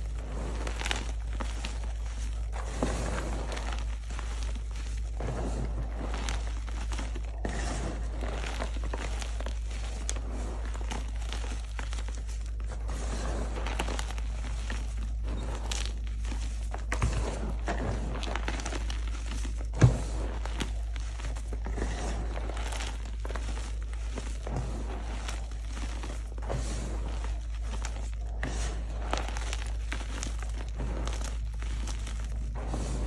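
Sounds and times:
chalk crunching and crumbling: 0.0 - 33.0.

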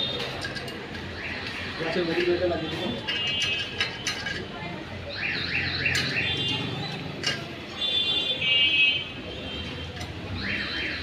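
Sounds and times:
electronic alarm siren: 5.1 - 6.5, 10.3 - 11.0.

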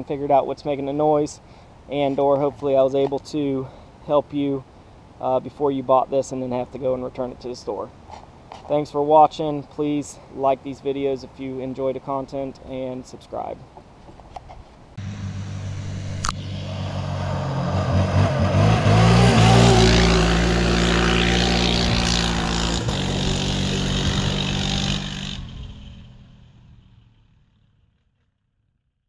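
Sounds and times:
quad bike engine passing: 15.0 - 28.5
sharp click: 16.2 - 16.4.

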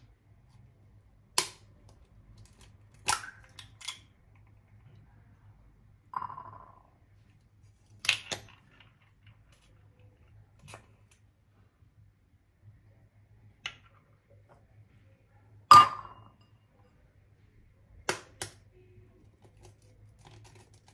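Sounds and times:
eggs cracking on ceramic bowl: 1.1 - 4.8, 7.9 - 11.2, 17.9 - 20.9.

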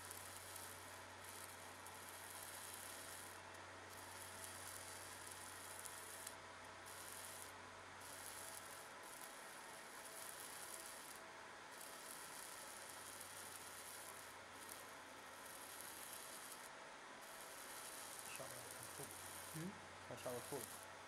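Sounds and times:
laser sizzling hiss: 4.0 - 6.3, 6.9 - 20.9.

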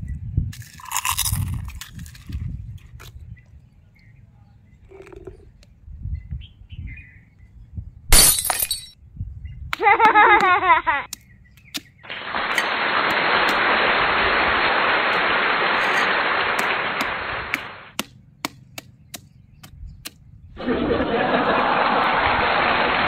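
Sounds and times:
applause: 20.6 - 23.0.

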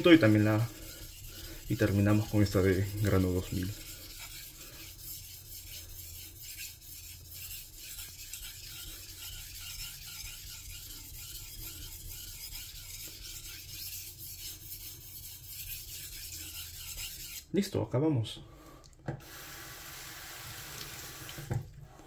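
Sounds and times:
knife scraping on whetstone: 0.0 - 17.5.

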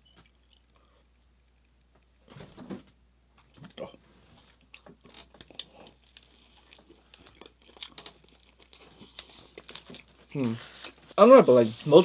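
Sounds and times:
chewing a sandwich: 0.0 - 1.9, 3.7 - 11.1.

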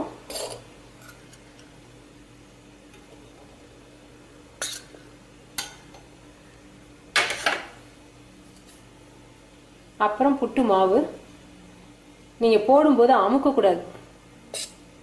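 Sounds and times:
metal spoon clinking on vessels: 5.6 - 6.1.

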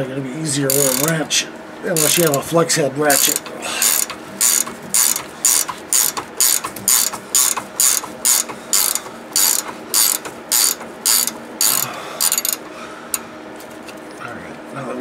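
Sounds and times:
ratchet wrench clicking: 0.7 - 1.2, 2.0 - 2.5, 3.1 - 12.6.

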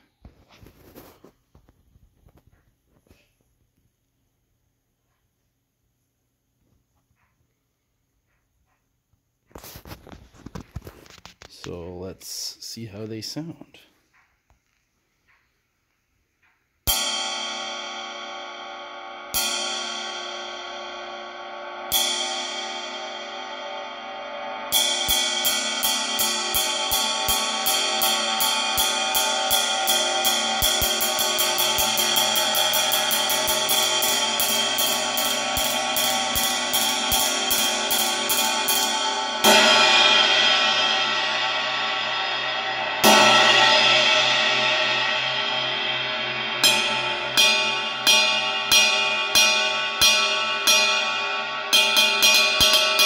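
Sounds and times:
ride cymbal struck with drumstick: 16.9 - 53.0.

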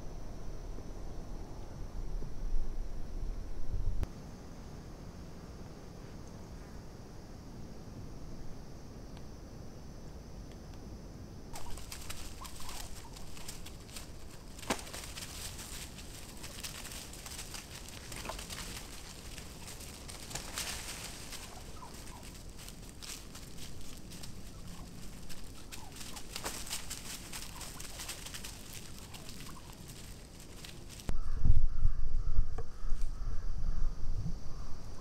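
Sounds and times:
scratching and rustling in leaves: 11.6 - 31.1
turkeys calling: 11.6 - 31.1.

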